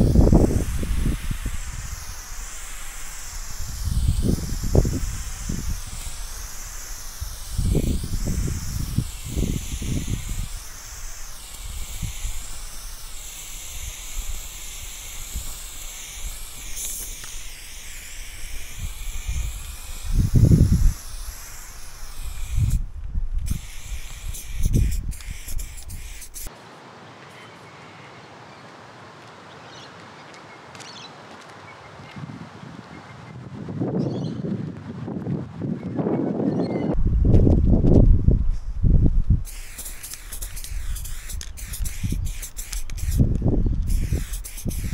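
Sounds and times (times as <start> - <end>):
wind rumble on microphone: 0.0 - 16.6, 18.3 - 21.4, 22.0 - 26.3, 32.0 - 39.6, 40.3 - 44.9
aerosol spray can hissing: 0.0 - 26.5, 39.4 - 44.9
faint hiss: 0.0 - 28.6, 39.4 - 44.9.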